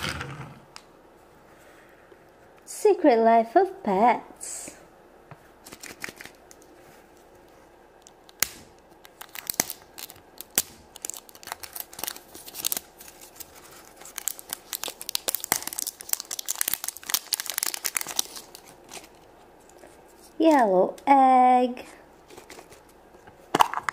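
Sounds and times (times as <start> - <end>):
foil wrapper crinkling: 8.1 - 20.4.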